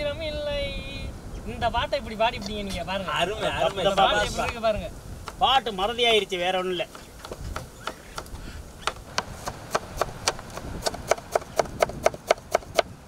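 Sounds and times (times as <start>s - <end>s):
knife chopping on plastic board: 6.9s - 12.9s.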